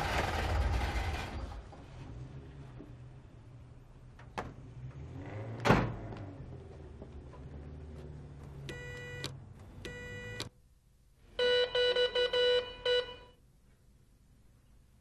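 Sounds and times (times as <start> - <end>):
low traffic rumble: 0.0 - 10.5.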